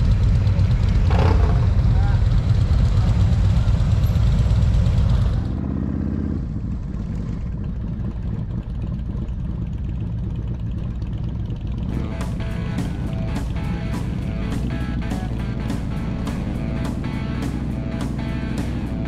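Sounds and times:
motorcycle engine rumbling: 0:00.0 - 0:19.0.

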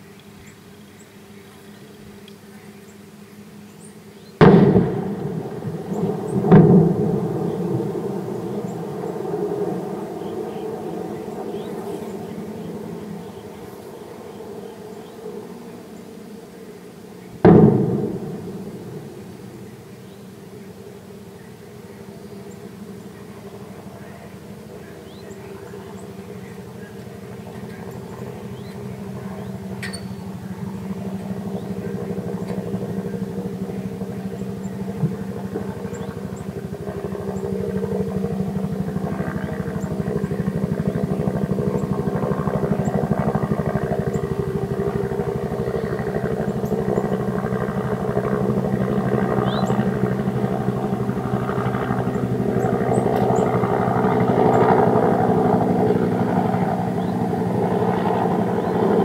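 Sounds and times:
engine running steadily: 0:00.0 - 0:59.0
sharp knock: 0:17.5 - 0:18.6.

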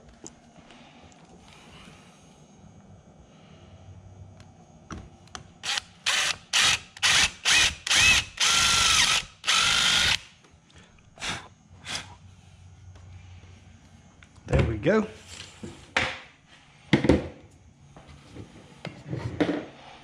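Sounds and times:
impact driver drilling in bursts: 0:05.6 - 0:10.3.

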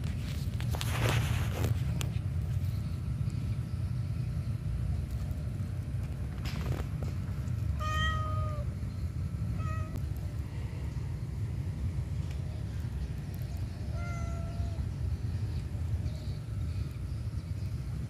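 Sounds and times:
low steady rumble: 0:00.0 - 0:18.0
cat meowing: 0:07.8 - 0:08.7, 0:09.5 - 0:10.0, 0:13.9 - 0:14.9.

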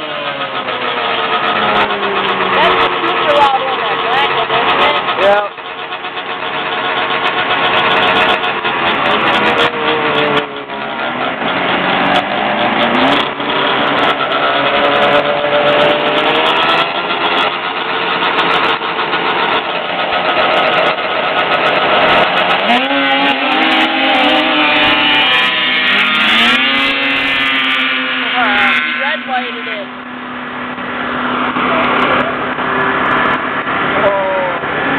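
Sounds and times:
snowmobile engines idling and revving: 0:00.0 - 0:34.9.

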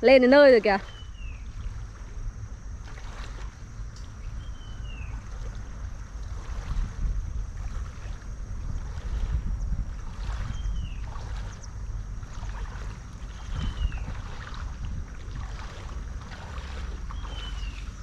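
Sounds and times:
wind rumbling on microphone: 0:00.0 - 0:18.0
bird whistling: 0:00.8 - 0:01.5, 0:04.2 - 0:05.1, 0:10.5 - 0:11.0, 0:13.3 - 0:14.1, 0:17.1 - 0:17.9
flowing stream water: 0:01.6 - 0:03.7, 0:05.0 - 0:18.0.

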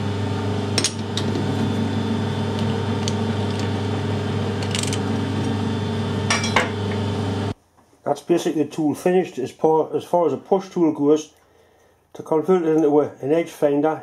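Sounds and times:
low machine hum: 0:00.0 - 0:07.6.

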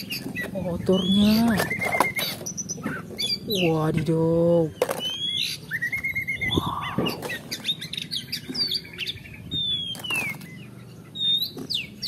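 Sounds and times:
bird trill: 0:00.0 - 0:03.9, 0:04.6 - 0:12.0
wild birds chirping: 0:00.0 - 0:12.0
long falling bird whistle: 0:05.2 - 0:07.6.

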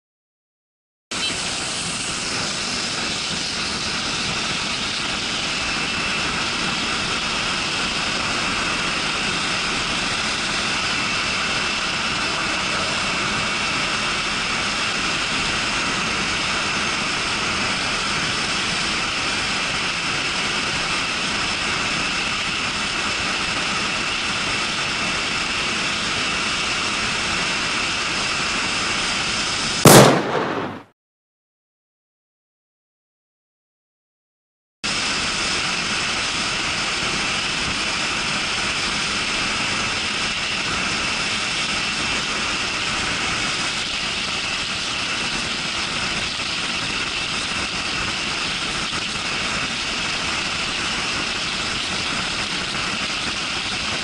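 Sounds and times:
motorcycle engine drone: 0:01.2 - 0:30.8
brief loud burst: 0:29.8 - 0:30.9.

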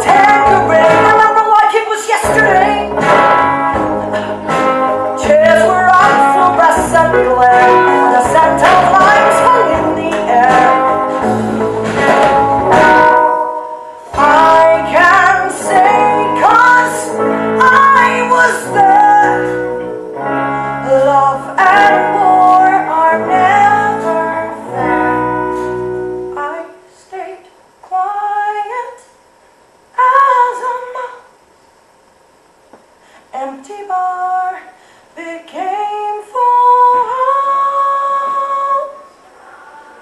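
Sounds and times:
person singing alone: 0:00.0 - 0:03.2, 0:05.1 - 0:11.3, 0:12.7 - 0:19.9, 0:20.8 - 0:25.4
band with singer: 0:00.0 - 0:25.7.

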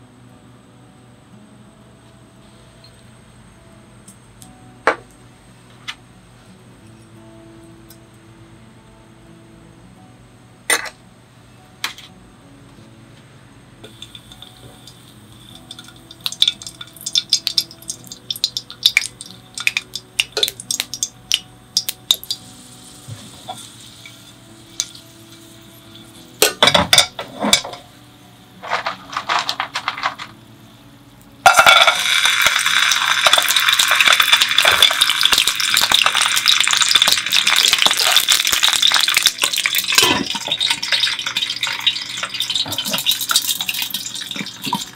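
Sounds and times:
loud steady sizzle: 0:13.8 - 0:44.9
garlic crackling in oil: 0:13.9 - 0:22.4, 0:31.4 - 0:44.9
shellfish clattering into metal pan: 0:28.6 - 0:30.3, 0:31.5 - 0:44.9.

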